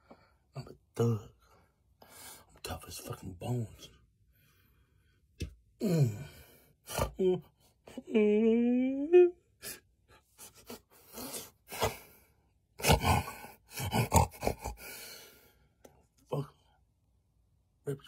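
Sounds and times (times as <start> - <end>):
man gasping and grunting: 5.7 - 7.4, 10.4 - 15.6
man moaning: 5.8 - 9.4.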